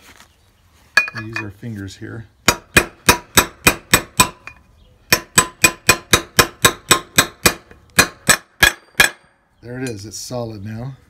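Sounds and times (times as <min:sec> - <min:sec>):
hammer tapping on metal: 0:02.5 - 0:10.0.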